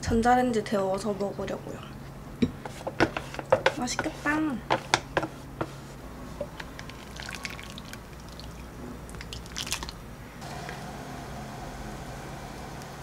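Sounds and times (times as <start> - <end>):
steady hum: 4.3 - 13.0
liquid splashing and dripping: 6.8 - 10.0.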